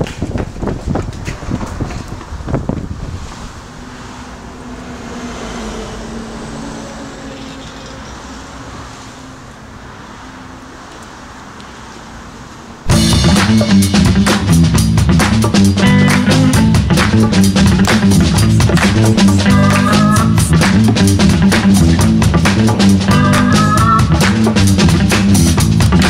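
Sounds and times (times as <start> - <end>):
road traffic noise: 0.0 - 26.0
passing car engine hum: 3.0 - 12.9
song with electric guitar and drums: 12.9 - 26.0.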